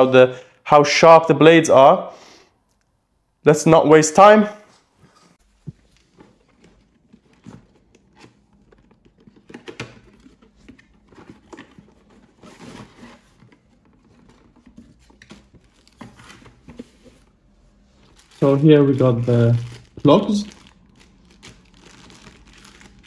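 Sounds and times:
cardboard and plastic packaging rustling: 4.8 - 23.0.

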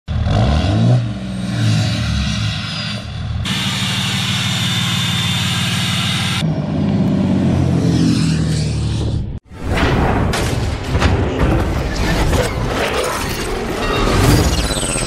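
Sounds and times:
diesel truck engine: 0.1 - 9.4.

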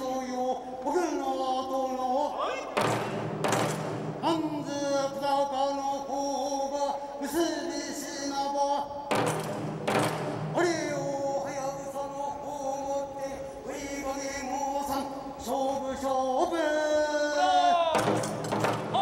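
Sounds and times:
sharp percussion strike: 2.8 - 4.4, 9.1 - 10.8
man chanting drawn-out notes: 10.5 - 18.2.

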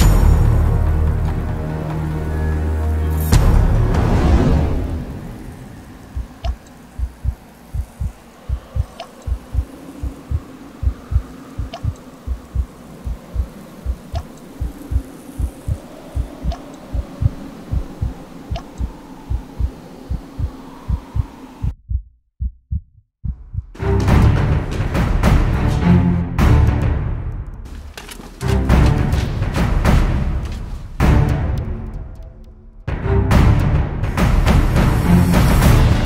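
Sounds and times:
heartbeat thumps: 6.1 - 24.2.

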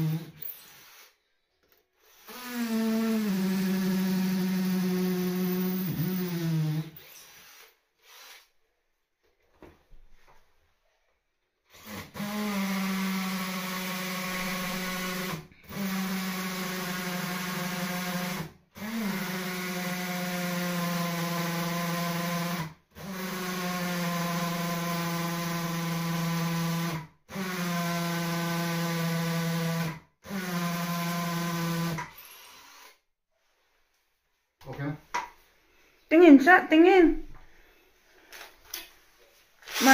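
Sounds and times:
power drill running: 0.0 - 1.2, 2.0 - 8.5, 11.7 - 33.0, 39.6 - 39.9.

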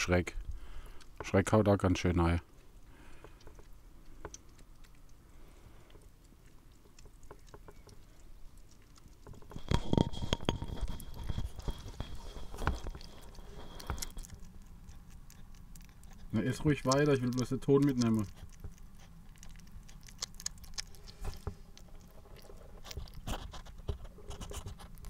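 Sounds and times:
hedgehogs chewing wet food: 0.0 - 25.0.

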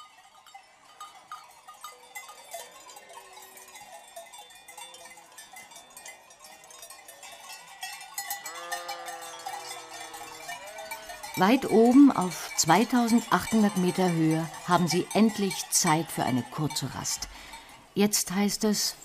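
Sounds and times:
sheep bells clanking: 0.0 - 19.0
sheep bleating: 8.5 - 11.4.

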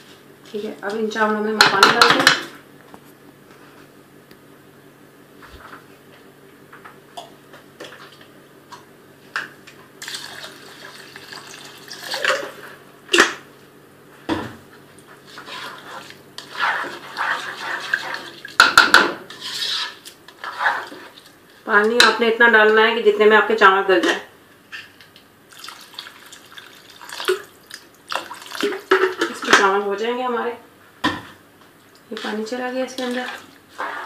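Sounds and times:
water pouring into a pot: 10.0 - 12.5, 25.5 - 28.9.

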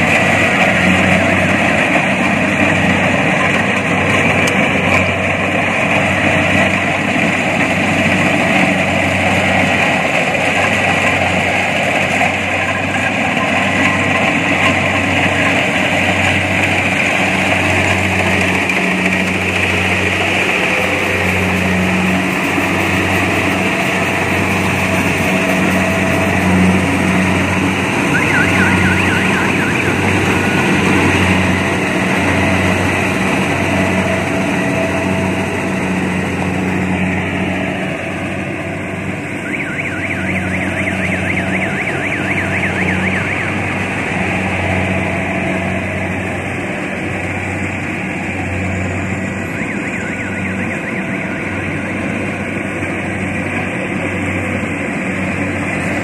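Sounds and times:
combine harvester engine drone: 0.0 - 56.0
machinery clatter: 0.0 - 56.0.

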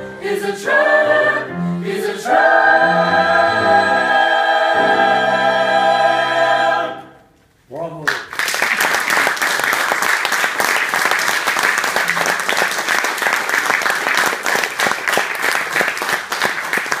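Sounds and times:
audience applauding: 8.0 - 17.0.

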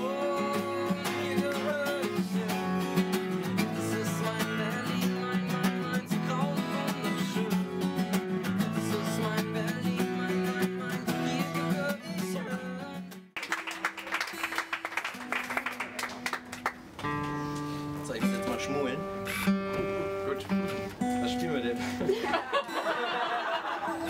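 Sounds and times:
acoustic guitar strumming chords: 0.0 - 13.3, 15.2 - 22.9
guitar held notes: 17.0 - 22.1.

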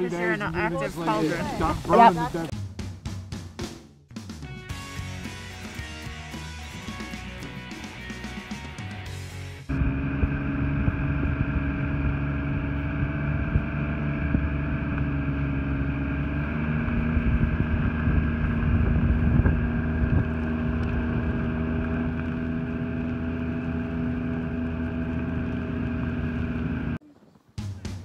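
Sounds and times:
snowmobile engine running: 0.0 - 2.5, 9.7 - 27.0.

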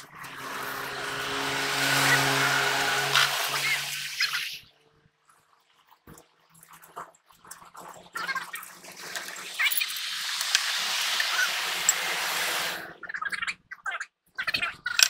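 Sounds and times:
compressed air hissing: 10.1 - 13.0.

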